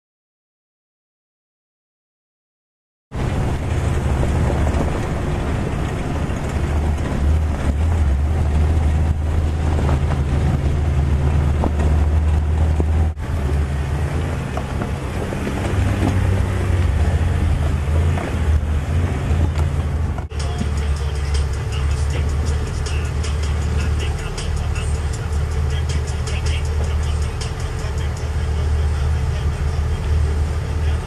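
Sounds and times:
car engine drone: 3.1 - 31.0
wind buffeting microphone: 3.2 - 20.3.

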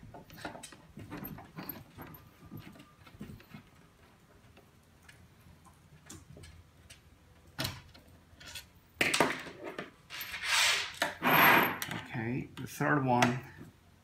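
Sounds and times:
metal parts clattering on wood: 8.4 - 12.1.

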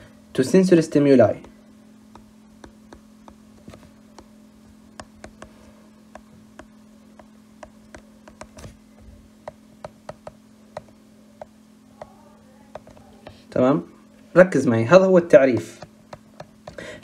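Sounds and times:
faint steady hum: 0.0 - 17.0
stylus tapping on glass screen: 1.4 - 4.3, 4.9 - 8.7, 9.4 - 13.1, 15.5 - 16.8.

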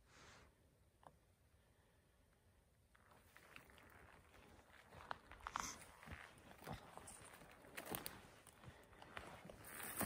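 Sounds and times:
footsteps through dry grass: 3.0 - 10.0.

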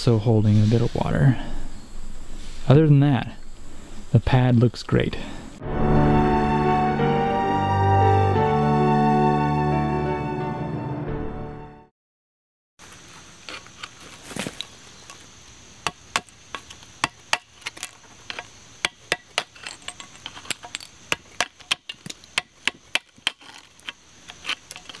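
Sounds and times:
chisel chipping concrete: 15.8 - 25.0.

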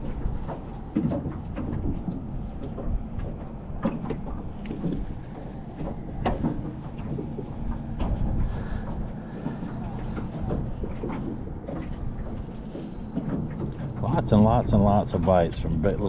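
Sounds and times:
waves lapping at a metal boat: 0.0 - 16.0
wind buffeting microphone: 0.0 - 16.0.

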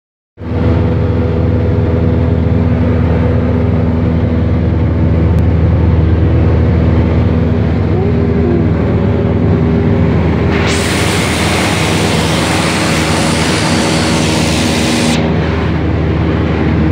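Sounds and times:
propeller aircraft engine droning: 0.4 - 16.9.

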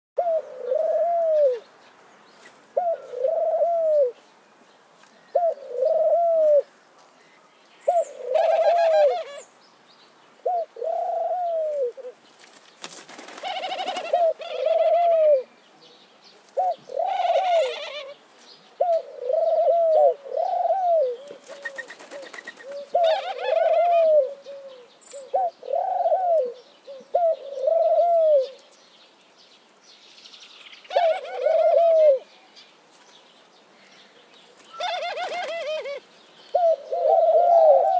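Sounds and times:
dove cooing: 0.2 - 1.6, 2.8 - 4.2, 5.3 - 6.7, 7.9 - 9.4, 10.4 - 12.2, 13.3 - 15.5, 16.5 - 18.2, 18.8 - 28.6, 30.9 - 32.3, 34.6 - 37.9.

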